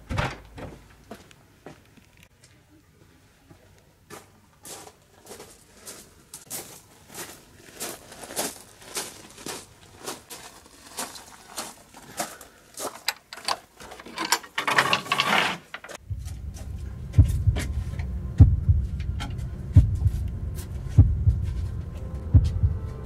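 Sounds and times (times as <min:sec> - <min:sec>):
footsteps on gravel: 0:04.1 - 0:14.0
heavy heartbeat thuds: 0:16.0 - 0:23.0
low droning rumble: 0:16.0 - 0:23.0.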